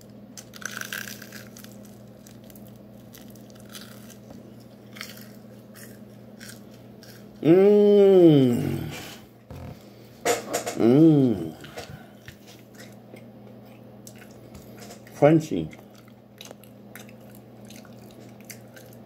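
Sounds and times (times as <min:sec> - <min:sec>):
cookie crunching while chewed: 0:00.0 - 0:07.5, 0:11.5 - 0:19.0
faint steady hum: 0:00.0 - 0:19.0
person's drawn-out vocal sound: 0:07.4 - 0:09.2, 0:10.8 - 0:12.1.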